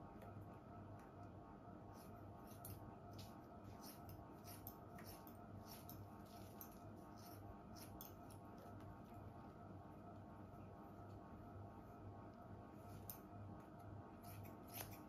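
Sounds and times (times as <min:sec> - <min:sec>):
scissors snipping hair: 0:02.0 - 0:08.7, 0:13.0 - 0:13.3, 0:14.2 - 0:15.0.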